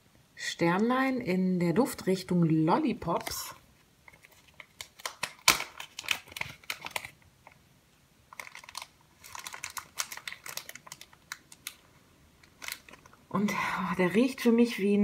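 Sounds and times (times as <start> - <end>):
crinkly packaging unwrapped: 3.2 - 7.6, 8.3 - 13.2.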